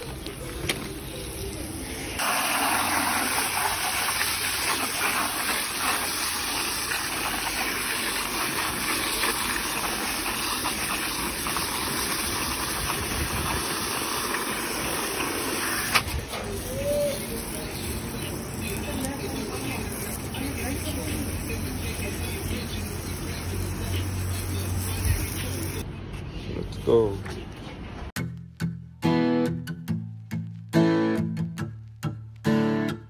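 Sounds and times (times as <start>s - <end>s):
hose nozzle jetting water: 2.2s - 25.8s.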